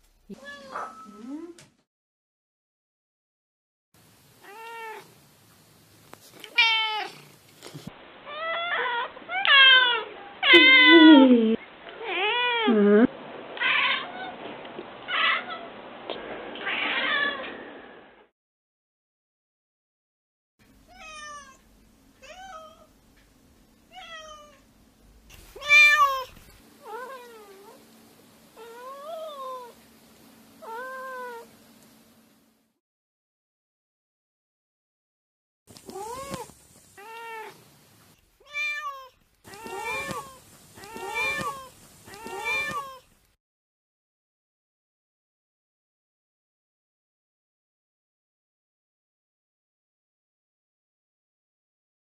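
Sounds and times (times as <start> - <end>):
cats meowing: 4.4 - 5.1, 6.4 - 7.3, 8.3 - 14.4, 25.5 - 27.8, 30.6 - 31.5, 35.8 - 37.6, 38.4 - 43.1.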